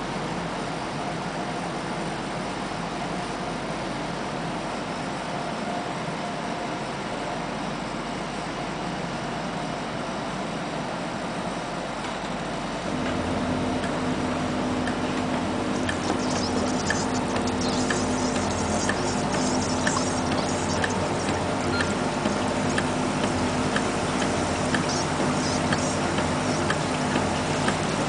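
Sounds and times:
low hum and steady tone: 0:13.0 - 0:28.0
machine mechanical hiss: 0:15.5 - 0:28.0.

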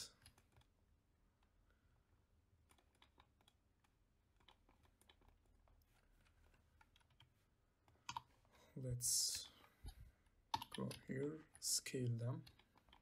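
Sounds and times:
keyboard and mouse clicks: 0:00.1 - 0:00.8, 0:02.6 - 0:08.4, 0:09.8 - 0:11.1, 0:12.3 - 0:13.0.

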